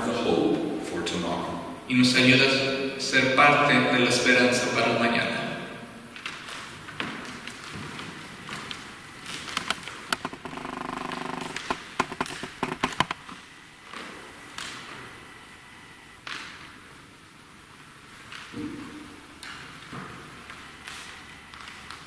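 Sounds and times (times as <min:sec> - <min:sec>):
wooden creak: 0:09.5 - 0:13.3.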